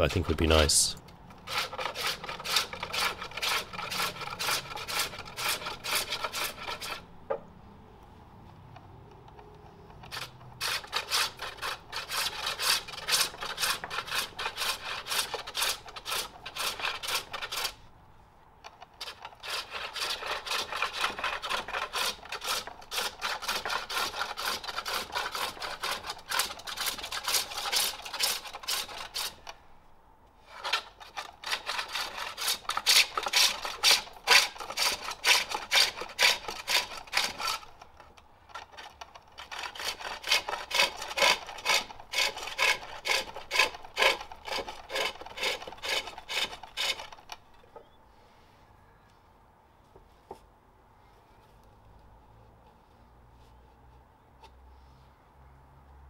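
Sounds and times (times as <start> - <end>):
hook tool scraping wood: 1.3 - 7.4, 9.8 - 17.8, 18.6 - 29.6, 30.4 - 48.0.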